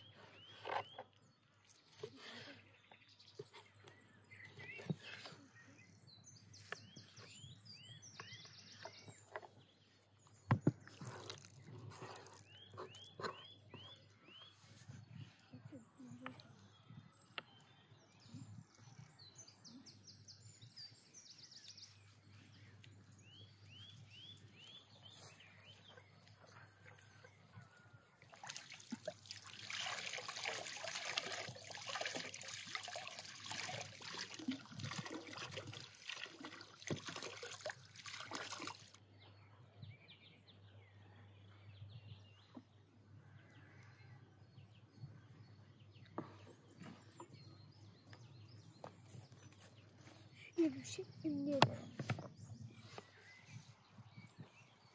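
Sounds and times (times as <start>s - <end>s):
bird chirping: 0.0s - 28.3s
water pouring over vegetables: 28.3s - 39.0s.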